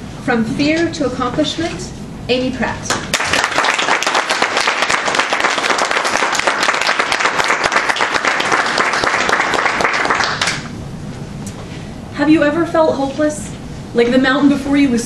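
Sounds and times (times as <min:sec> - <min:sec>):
audience applauding: 0:03.1 - 0:10.7.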